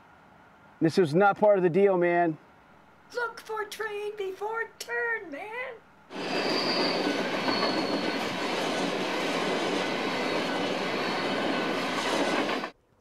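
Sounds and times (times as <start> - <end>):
high wheel squeal: 6.1 - 12.7
train wheels on rails: 6.1 - 12.8.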